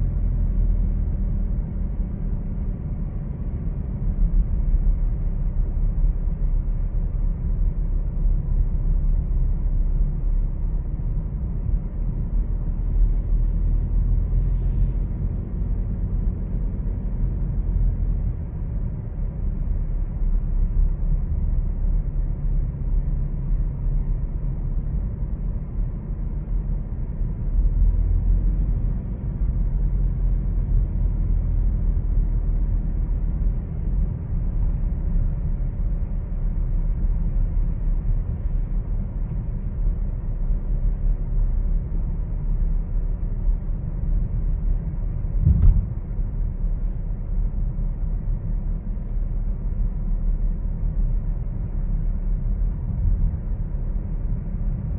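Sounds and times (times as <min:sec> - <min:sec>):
car road and engine rumble: 0:00.0 - 0:54.9
short knock: 0:45.4 - 0:46.0.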